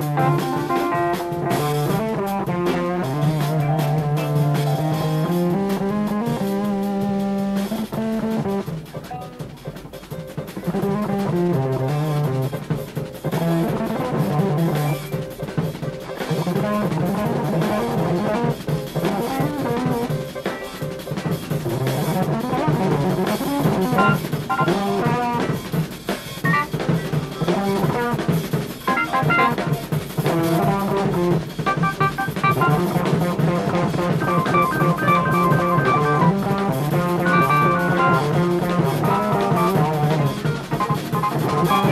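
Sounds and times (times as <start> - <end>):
drum kit: 0.0 - 41.9
electric guitar: 0.0 - 41.9
fusion band playing live: 0.0 - 41.9.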